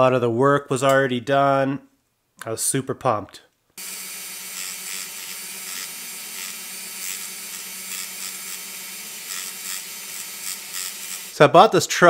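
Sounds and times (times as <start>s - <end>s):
rotary tool cutting metal: 3.8s - 11.4s.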